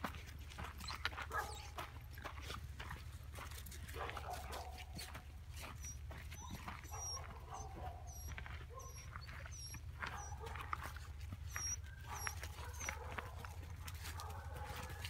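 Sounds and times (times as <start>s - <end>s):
puppies squeaking and yipping: 0.6s - 2.0s, 4.8s - 15.0s.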